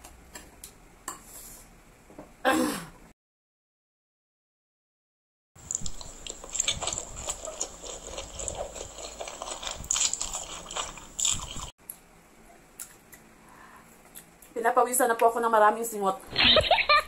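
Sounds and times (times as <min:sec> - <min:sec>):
wet chewing: 0:05.6 - 0:12.0
noodles slurped: 0:05.7 - 0:11.7.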